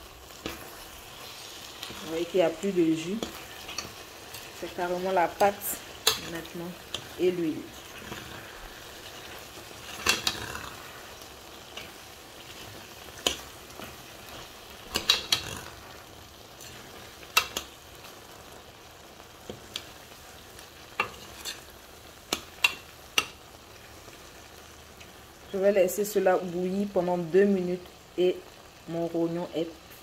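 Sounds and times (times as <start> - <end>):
stew sizzling in pot: 0.0 - 30.0
spatula scraping and knocking pot: 14.8 - 15.7.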